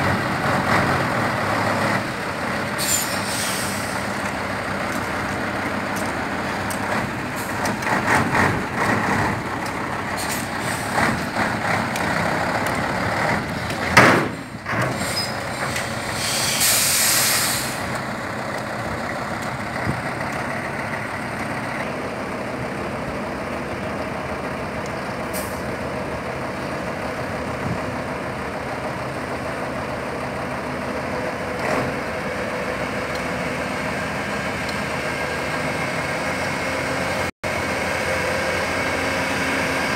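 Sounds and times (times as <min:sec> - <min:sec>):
diesel truck engine running: 0:00.0 - 0:39.9
loud air burst: 0:02.8 - 0:04.1, 0:10.2 - 0:11.1, 0:14.9 - 0:18.0
air hissing: 0:02.8 - 0:04.2, 0:14.9 - 0:18.0.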